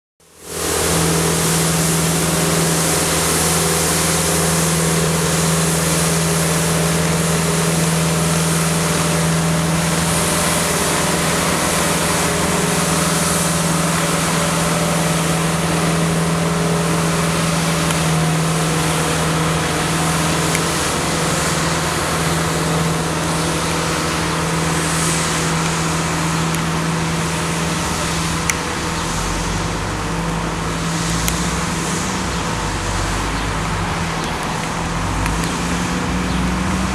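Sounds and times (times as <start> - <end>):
street sweeper engine drone: 0.2 - 36.9.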